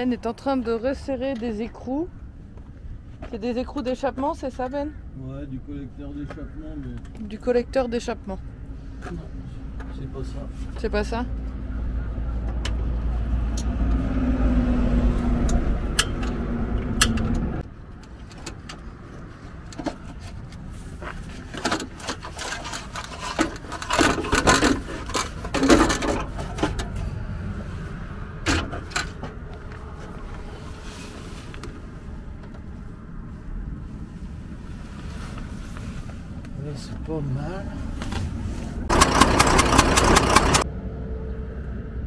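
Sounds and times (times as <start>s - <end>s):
metallic clinks and scrapes: 21.3s - 27.0s
diesel engine idling: 38.9s - 40.6s.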